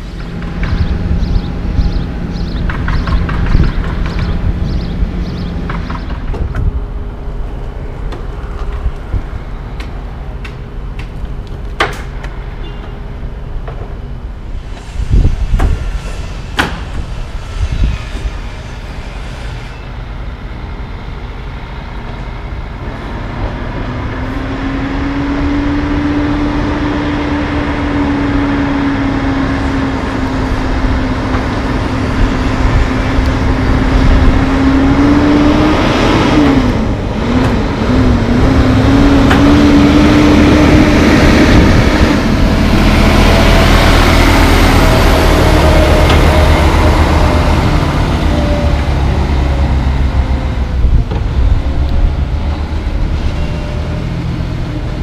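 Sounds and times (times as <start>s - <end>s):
truck diesel engine approaching: 0.0s - 55.0s
sharp knocks: 2.6s - 4.5s, 16.6s - 17.1s.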